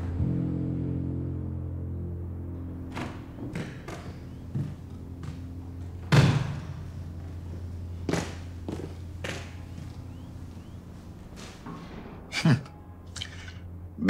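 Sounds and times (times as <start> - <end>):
low steady hum: 0.0 - 14.0
heavy thud: 3.0 - 7.4.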